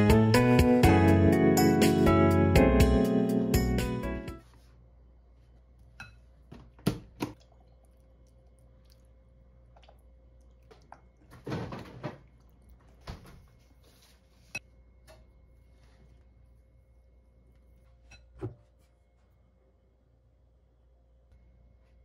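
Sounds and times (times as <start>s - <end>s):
liquid pouring: 7.4s - 13.0s.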